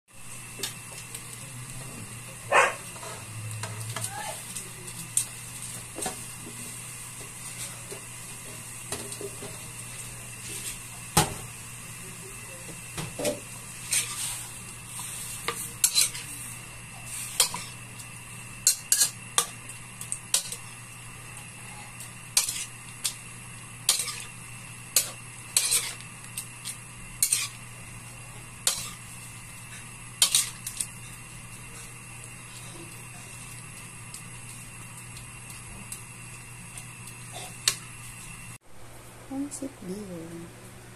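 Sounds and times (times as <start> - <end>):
steady low hum: 0.2 - 40.9
metal spatula scraping wok: 13.2 - 17.8, 18.6 - 19.5, 21.7 - 22.7, 23.8 - 24.3, 25.0 - 26.0, 27.2 - 27.6, 28.6 - 29.0, 29.7 - 31.1.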